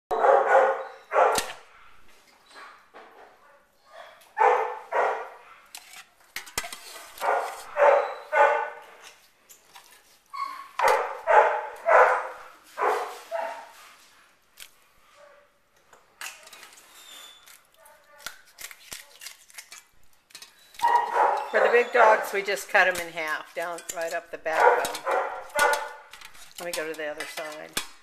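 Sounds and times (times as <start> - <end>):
dogs barking: 0.1 - 1.8, 3.9 - 5.7, 7.0 - 8.9, 10.4 - 13.8, 20.8 - 22.6, 24.5 - 26.1.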